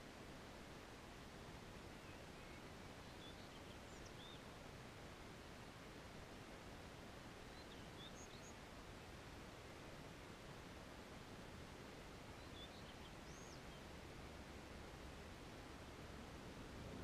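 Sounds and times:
outdoor background hiss: 0:00.0 - 0:17.0
faint high bird chirps: 0:02.0 - 0:04.5, 0:07.5 - 0:08.6, 0:12.3 - 0:14.0.

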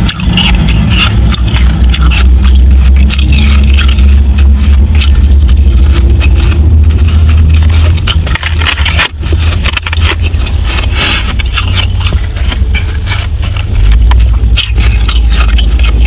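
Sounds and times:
ice being chewed: 0:00.0 - 0:16.0
low rumble: 0:00.0 - 0:16.0
ice scraping in plastic tub: 0:00.1 - 0:04.1.

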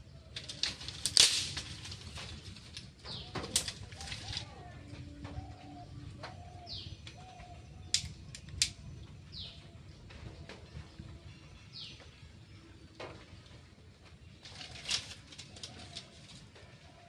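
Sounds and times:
doves cooing: 0:00.0 - 0:08.2, 0:14.4 - 0:17.0
birds calling: 0:00.0 - 0:17.0
dry sticks clicking: 0:00.3 - 0:04.6, 0:07.8 - 0:08.8.

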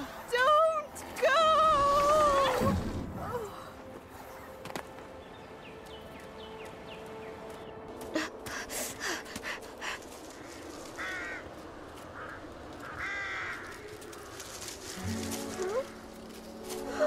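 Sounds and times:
crow cawing: 0:11.0 - 0:14.3.

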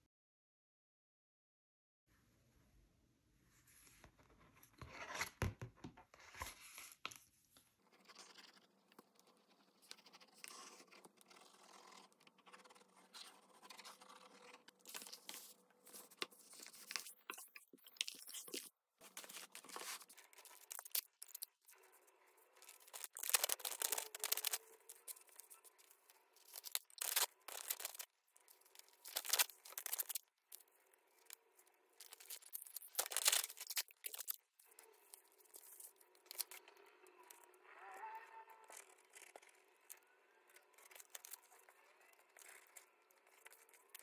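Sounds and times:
paper tearing and rustling: 0:09.9 - 0:17.4, 0:18.0 - 0:21.5, 0:22.6 - 0:25.6, 0:26.4 - 0:28.1, 0:28.7 - 0:30.2, 0:32.0 - 0:34.4.

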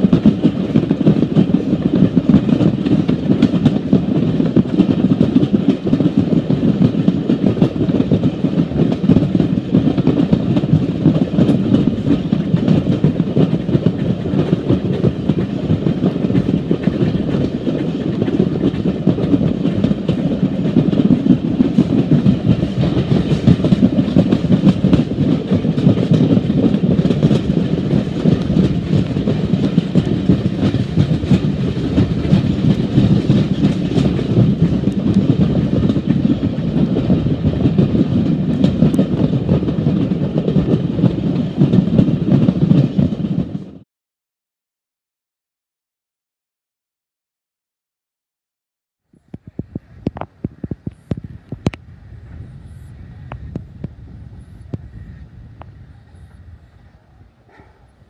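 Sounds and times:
train wheels clattering over track: 0:00.0 - 0:43.8.

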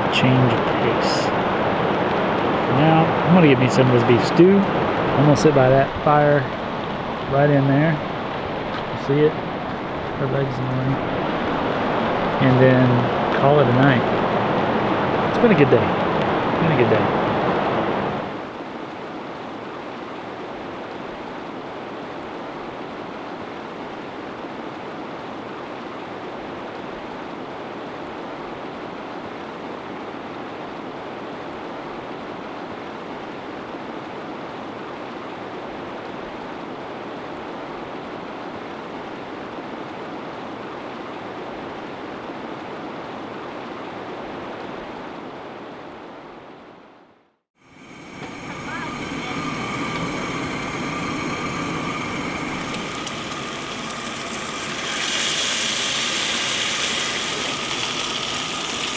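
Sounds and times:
river rushing over stones: 0:47.6 - 0:58.9.

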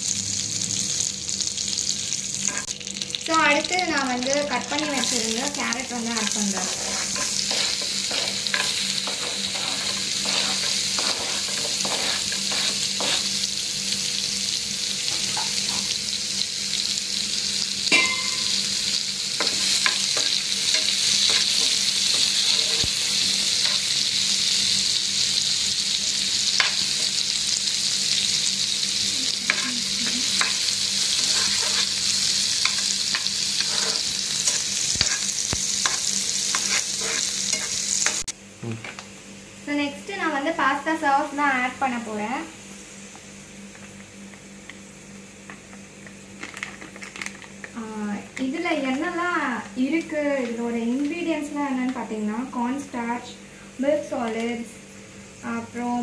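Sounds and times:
carrots sizzling in butter: 0:00.0 - 0:39.1
spatula scraping a pan: 0:06.1 - 0:13.4, 0:19.4 - 0:23.9, 0:29.5 - 0:38.3.

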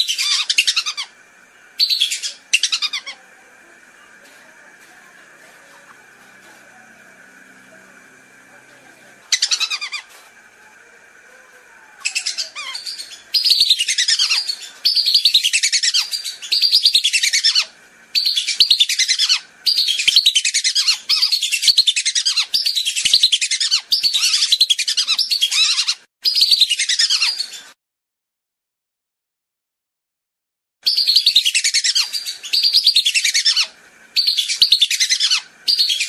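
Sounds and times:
whistling ducks calling: 0:00.0 - 0:03.2, 0:09.3 - 0:10.1, 0:12.0 - 0:27.7, 0:30.8 - 0:36.0.

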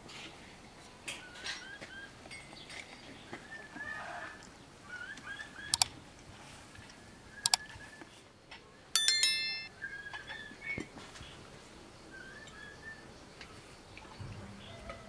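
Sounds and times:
bell-like notification chime: 0:09.0 - 0:09.7.

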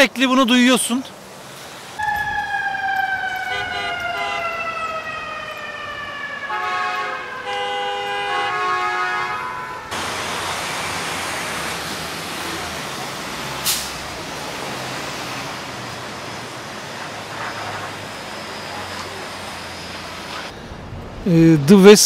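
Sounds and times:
emergency siren wailing: 0:02.0 - 0:20.9
multi-note horn blasts: 0:03.4 - 0:04.6, 0:06.5 - 0:10.0.

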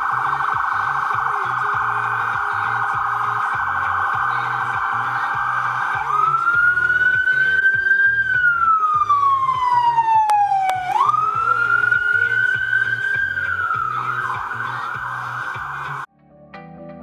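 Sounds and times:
ambulance siren yelping and wailing: 0:00.0 - 0:16.1.

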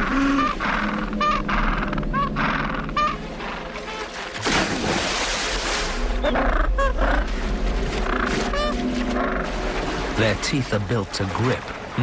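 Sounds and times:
harsh penguin calls: 0:00.0 - 0:03.2
water splashing heavily: 0:03.9 - 0:06.2, 0:07.2 - 0:12.0.

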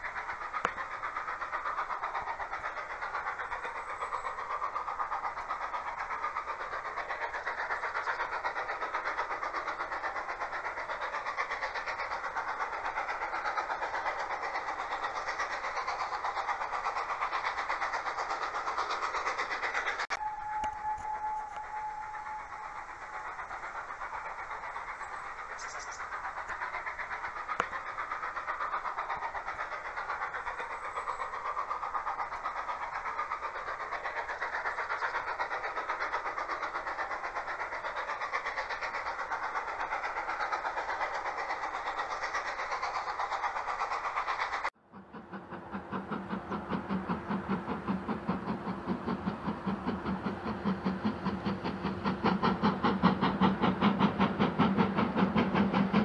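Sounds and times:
steam locomotive exhaust beats: 0:00.0 - 0:56.0
train rushing noise: 0:00.0 - 0:56.0.

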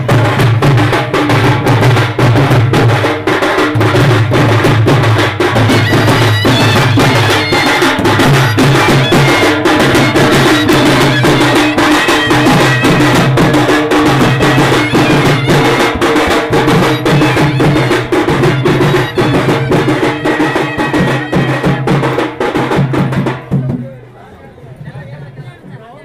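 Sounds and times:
fast steady drumming: 0:00.0 - 0:25.9
wind instrument melody: 0:03.9 - 0:23.2.

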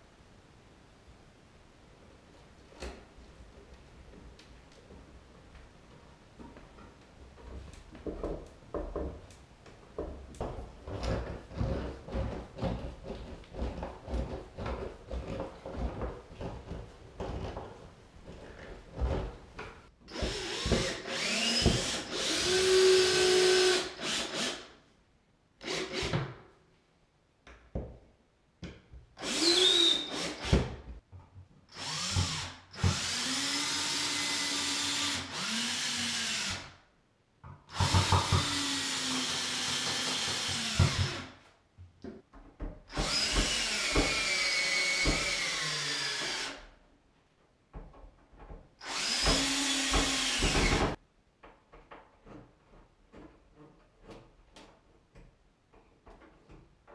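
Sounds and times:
cordless drill driving screws: 0:20.1 - 0:24.7, 0:29.2 - 0:30.7, 0:31.7 - 0:36.7, 0:37.7 - 0:41.4, 0:42.9 - 0:46.6, 0:48.8 - 0:51.0.

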